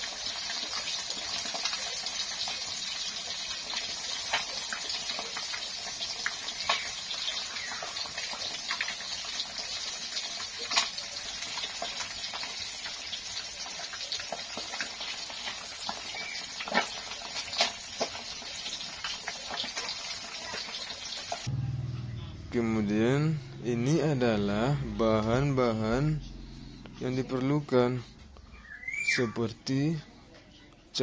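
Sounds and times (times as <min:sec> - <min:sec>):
fish sizzling in hot oil: 0:00.0 - 0:21.5.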